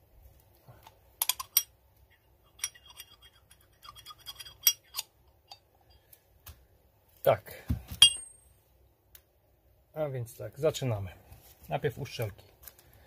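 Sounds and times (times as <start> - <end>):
small metal parts clicking: 1.2 - 1.7, 2.5 - 5.6.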